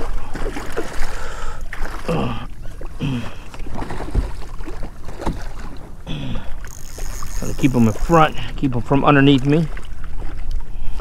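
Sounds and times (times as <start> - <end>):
fish splashing in water: 0.0 - 8.5.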